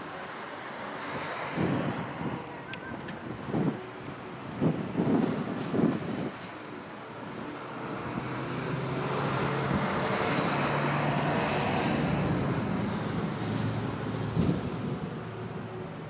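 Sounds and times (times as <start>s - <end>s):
vehicle passing by: 7.4s - 15.6s.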